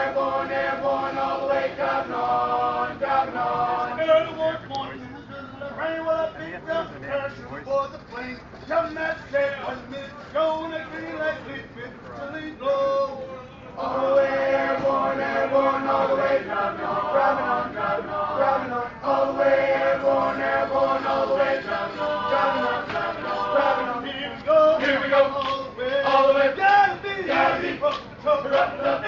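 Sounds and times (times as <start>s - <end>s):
soldiers singing in unison: 0.0s - 4.3s, 13.8s - 29.0s.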